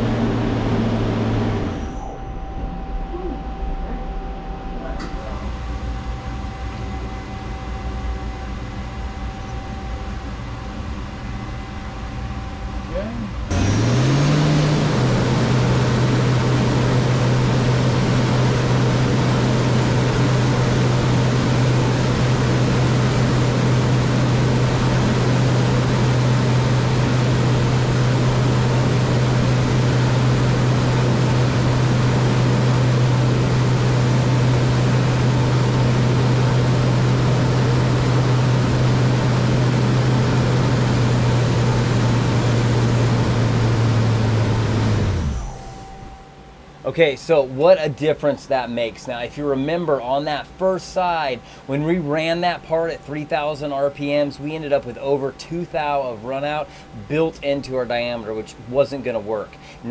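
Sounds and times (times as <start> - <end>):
lathe spindle humming: 13.4 - 46.6.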